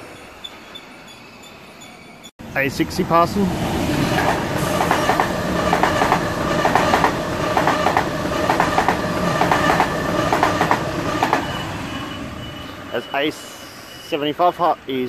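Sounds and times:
train passing with rumble: 0.0s - 15.0s
wheels clacking over rail joints: 4.2s - 11.6s.

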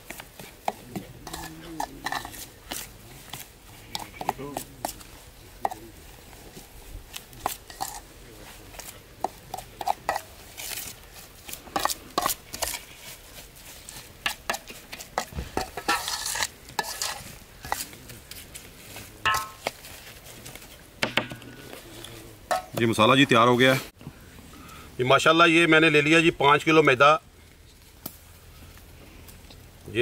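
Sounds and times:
metal spoon scraping steel tray: 14.9s - 17.9s.

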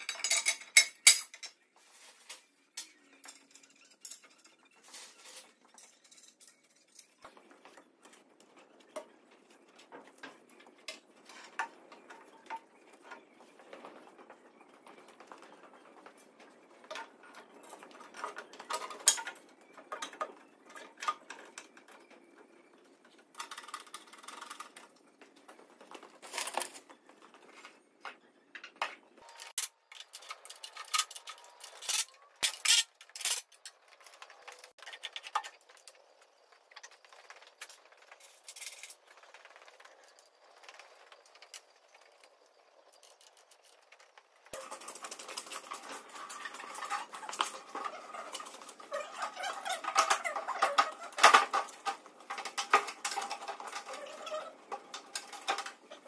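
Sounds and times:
metal tools clinking and knocking: 0.0s - 1.6s, 2.7s - 7.4s, 28.6s - 35.7s.

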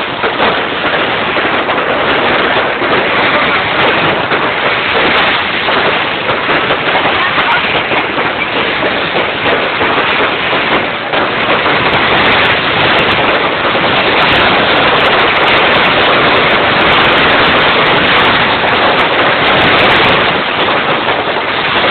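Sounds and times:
fireworks crackling: 0.0s - 21.9s.

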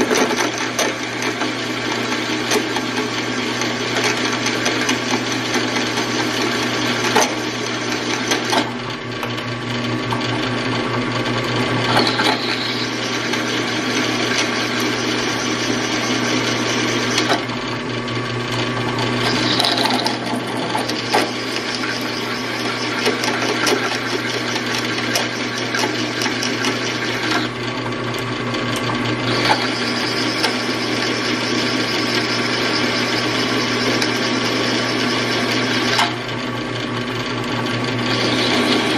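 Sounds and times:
drill press motor hum: 0.0s - 38.9s
drill bit grinding through steel: 11.8s - 17.5s, 19.0s - 27.5s, 29.2s - 36.2s, 38.0s - 38.9s.

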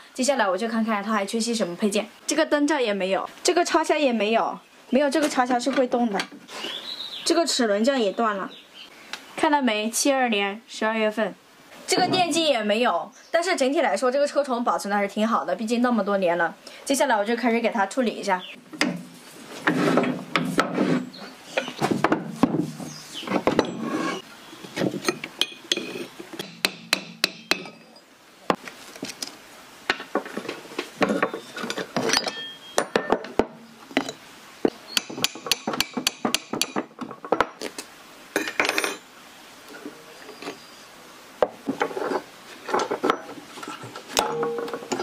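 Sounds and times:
metal scraping and rubbing: 19.1s - 21.8s, 22.6s - 24.3s
metal parts clinking and knocking: 31.0s - 33.3s, 44.2s - 45.0s.

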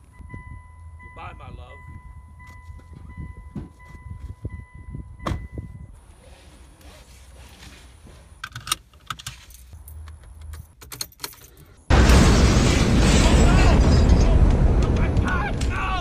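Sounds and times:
car keys jangling: 8.4s - 11.9s.

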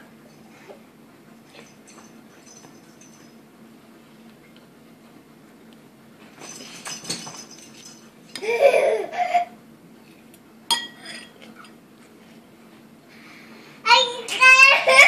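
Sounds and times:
toddler high-pitched vocal sound: 13.9s - 15.0s.

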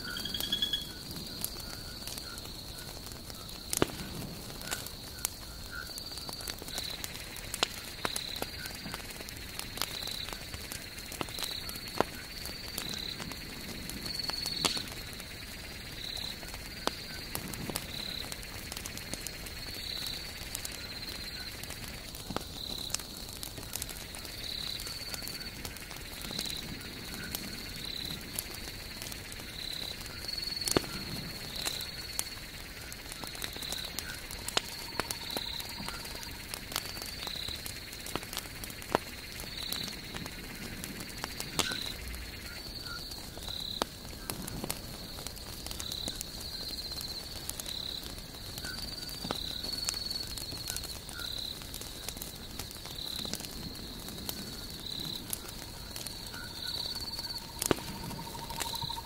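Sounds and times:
night animal chirping: 0.0s - 2.9s, 23.7s - 43.8s, 52.7s - 59.0s
campfire crackling and popping: 0.0s - 59.0s.

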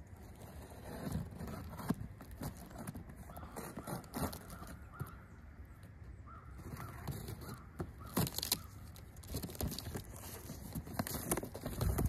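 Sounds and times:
packing paper rustling: 0.2s - 5.1s, 6.6s - 12.0s
cardboard knocks and scrapes: 0.4s - 5.1s, 6.6s - 12.0s
bird calling: 3.2s - 9.1s.

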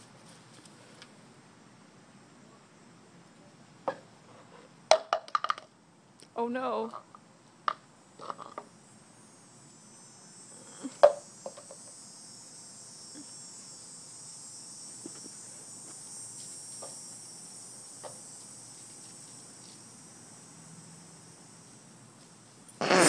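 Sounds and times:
high-pitched insect chorus: 6.4s - 23.0s.

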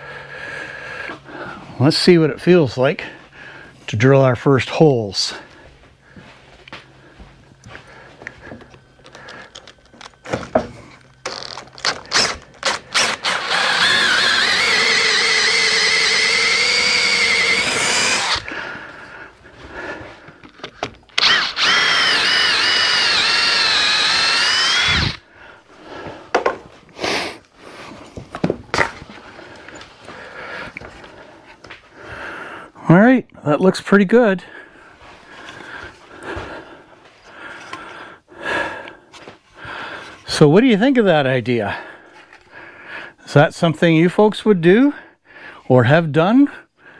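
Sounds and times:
cordless drill boring into wood: 11.2s - 18.6s, 21.2s - 25.3s.

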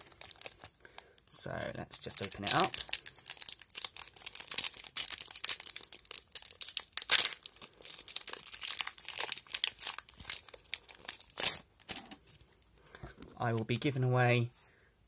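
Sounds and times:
foil wrapper crinkling and tearing: 0.0s - 1.2s, 2.0s - 12.2s.

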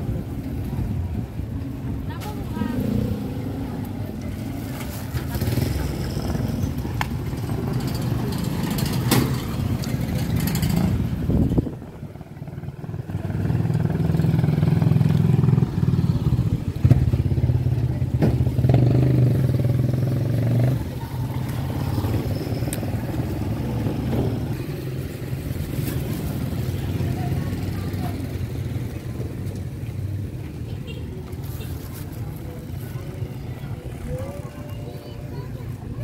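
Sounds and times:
motorcycle engine running: 5.1s - 30.3s.

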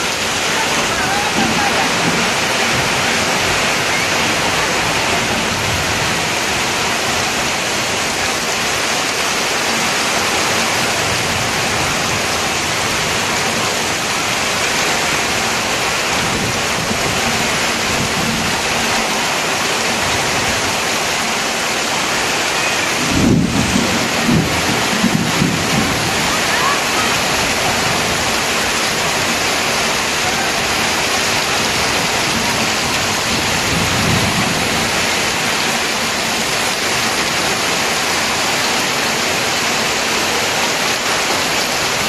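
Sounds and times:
heavy rain pouring: 0.0s - 42.0s.

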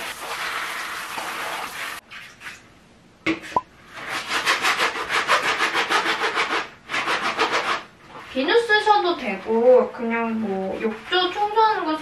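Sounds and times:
water running from hand shower: 0.0s - 2.0s
brush scrubbing wet filter: 0.0s - 2.6s, 3.9s - 12.0s.

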